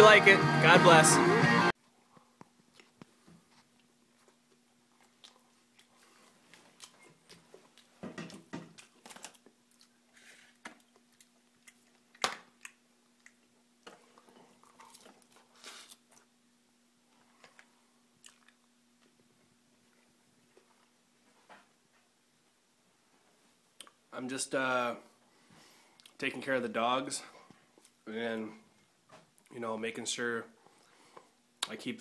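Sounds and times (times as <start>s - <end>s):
faint steady hum: 1.7s - 32.0s
person chewing a sandwich: 2.1s - 8.0s, 8.6s - 16.4s, 17.0s - 21.0s.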